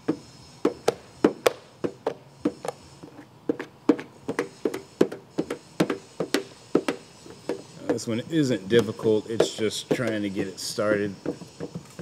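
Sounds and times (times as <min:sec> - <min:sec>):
squeegee knocking on car panel: 0:03.5 - 0:08.0, 0:09.4 - 0:10.2.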